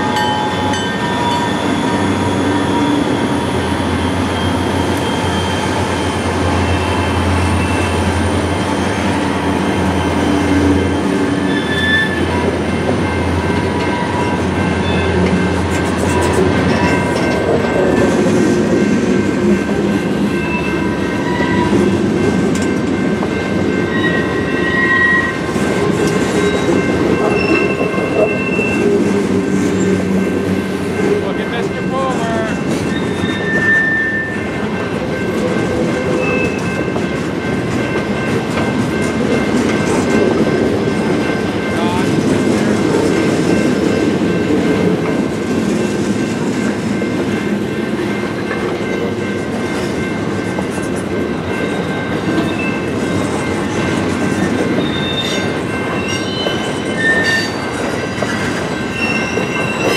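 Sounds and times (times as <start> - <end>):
diesel locomotive drone: 0.0 - 59.9
wheels rumbling on rail: 0.0 - 59.9
high-pitched wheel squeals: 0.6 - 7.9, 10.8 - 12.3, 23.9 - 25.4, 32.8 - 34.4, 54.8 - 59.9.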